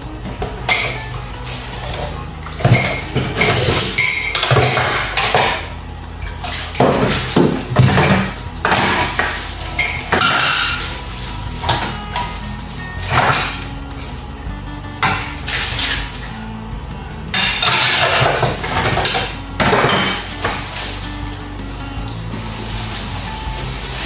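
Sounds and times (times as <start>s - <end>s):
dishes clattering in a sink: 0.3s - 5.7s, 6.3s - 11.0s, 13.0s - 13.8s, 17.3s - 21.4s.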